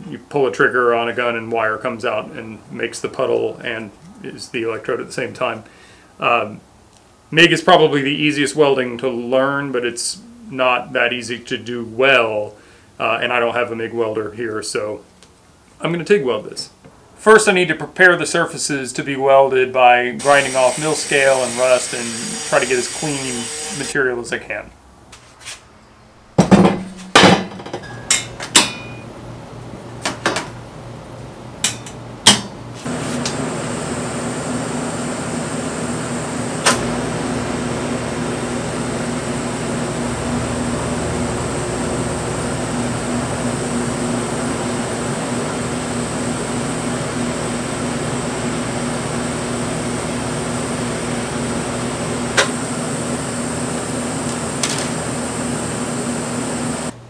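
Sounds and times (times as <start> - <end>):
welder hum: 20.2 - 24.0, 32.8 - 57.0
welding arc buzzing: 20.2 - 24.0, 32.8 - 57.0.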